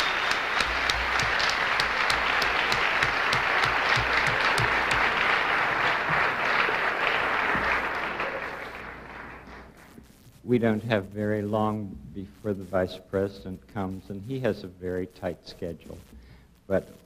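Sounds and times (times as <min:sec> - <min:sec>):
audience applauding: 0:00.0 - 0:09.9
sharp claps nearby: 0:00.0 - 0:10.1.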